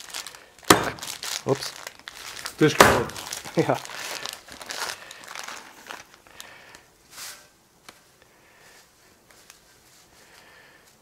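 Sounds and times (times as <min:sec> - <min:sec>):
plastic packet crinkling: 0:00.0 - 0:06.8.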